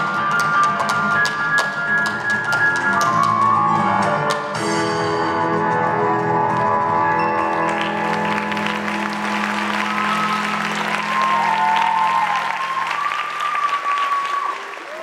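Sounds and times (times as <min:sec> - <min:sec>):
audience applause: 0:07.0 - 0:15.0.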